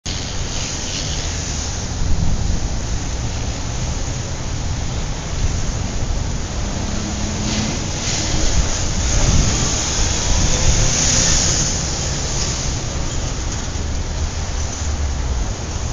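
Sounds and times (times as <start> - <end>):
hiss: 0.1 - 2.0, 7.2 - 13.8
low rumbling noise: 0.1 - 15.9.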